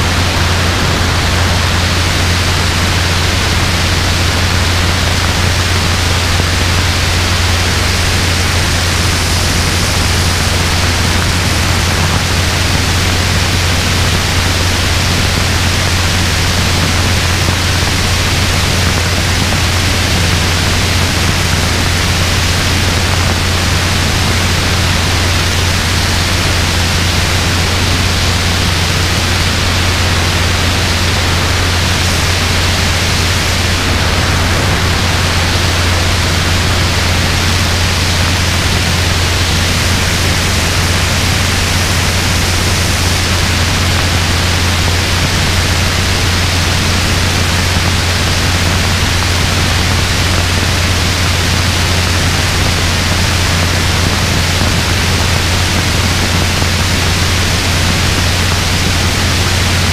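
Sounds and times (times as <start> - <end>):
helicopter rotor and engine drone: 0.0 - 59.9
wind rush on microphone: 0.0 - 59.9.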